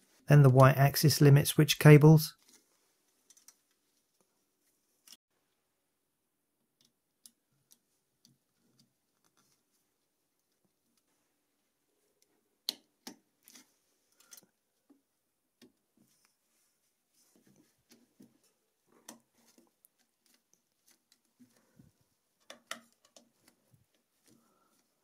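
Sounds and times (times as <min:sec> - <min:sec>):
soft rustling of gloves: 0:02.3 - 0:05.2, 0:07.8 - 0:12.5, 0:13.4 - 0:25.0.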